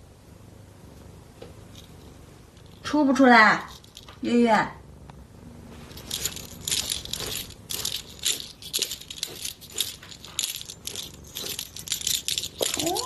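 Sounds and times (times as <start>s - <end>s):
small object rattling: 1.8s - 2.9s, 3.5s - 4.2s, 5.9s - 13.0s.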